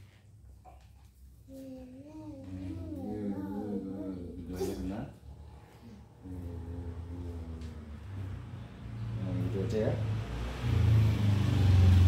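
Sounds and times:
child humming wordlessly: 1.5s - 4.8s.

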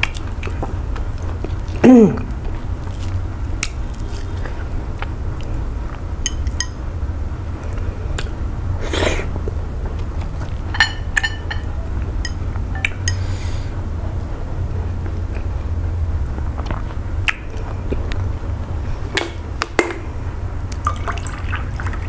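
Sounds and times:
steady low hum: 0.0s - 22.0s
wet mouth clicks and smacks: 17.2s - 17.7s.

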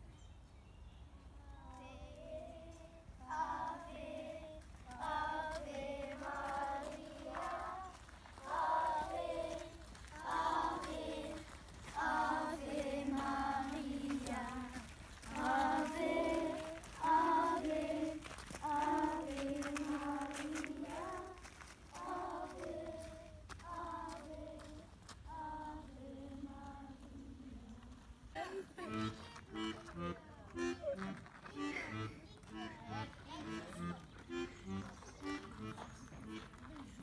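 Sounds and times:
children singing in unison: 2.5s - 21.4s.

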